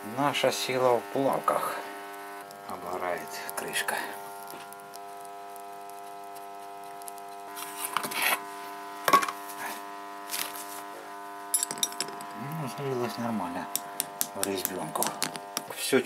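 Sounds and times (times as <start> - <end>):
steady electrical hum: 0.0 - 16.0.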